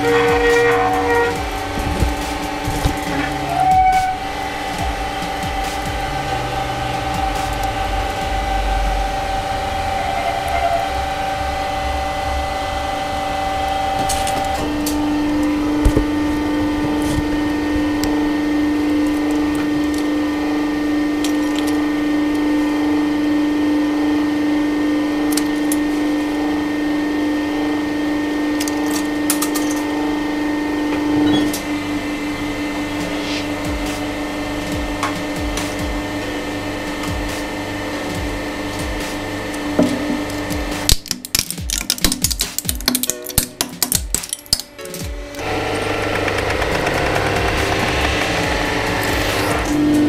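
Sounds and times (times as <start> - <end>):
hydraulic pump humming: 0.0 - 42.2, 42.8 - 50.0.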